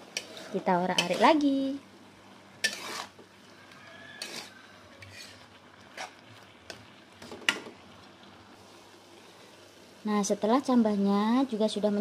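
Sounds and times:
spatula scraping a wok: 0:00.0 - 0:01.4, 0:02.6 - 0:07.7.

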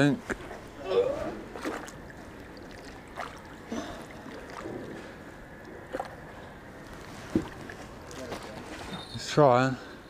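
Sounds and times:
water lapping against wall: 0:00.0 - 0:09.0
short splashes: 0:01.2 - 0:05.2.

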